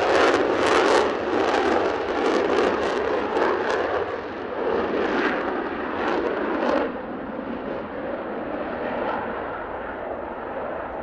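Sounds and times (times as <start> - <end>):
jet engines roaring at takeoff: 0.0 - 11.0.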